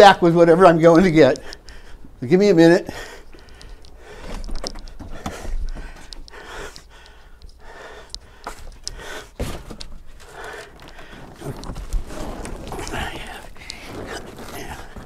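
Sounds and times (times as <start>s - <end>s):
knocks and clicks of handling: 3.4s - 15.0s
rustling handling noise: 8.4s - 15.0s.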